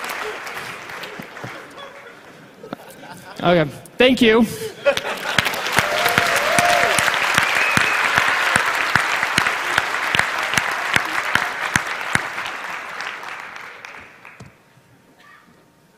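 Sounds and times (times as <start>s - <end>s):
audience applauding: 0.0s - 2.3s, 4.9s - 14.6s.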